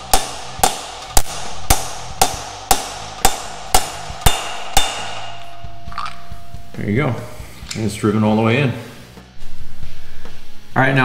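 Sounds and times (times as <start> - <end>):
hammer striking metal socket: 0.0 - 7.8.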